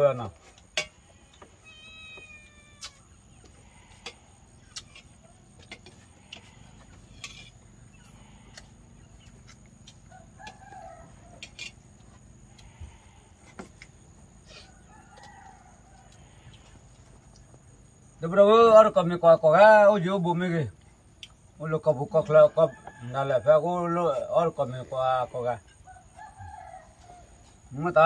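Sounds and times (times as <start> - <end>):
chickens clucking: 2.4 - 17.6.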